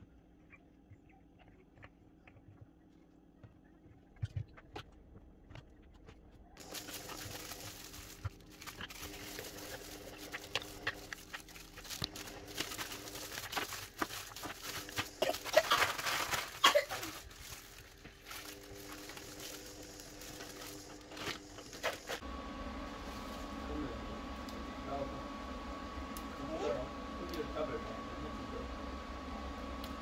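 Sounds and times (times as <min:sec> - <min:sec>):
plastic bag crinkling: 0:06.6 - 0:22.2.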